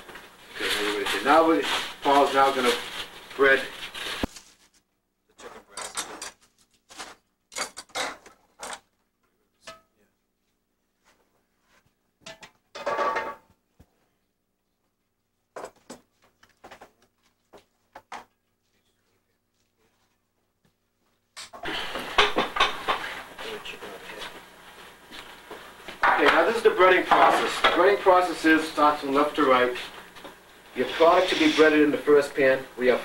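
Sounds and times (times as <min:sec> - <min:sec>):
metal bowls and utensils knocking: 0:09.6 - 0:10.0, 0:12.2 - 0:13.5.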